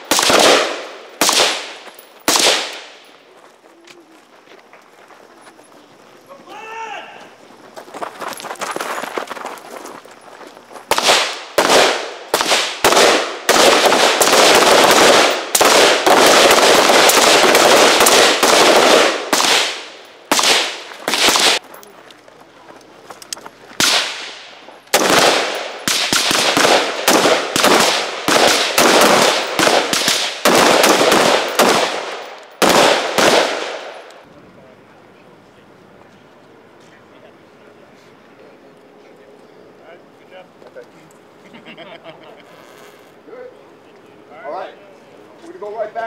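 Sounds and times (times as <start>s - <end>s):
rifle fire volley: 0.0s - 3.0s, 10.9s - 21.6s, 23.8s - 34.1s.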